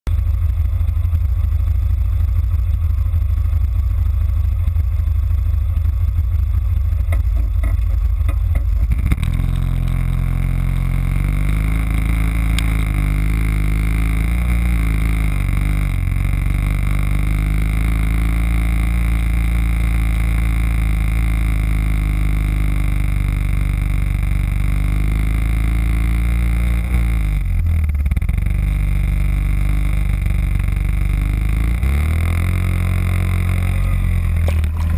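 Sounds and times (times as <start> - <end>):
quad bike engine running: 0.1 - 34.9.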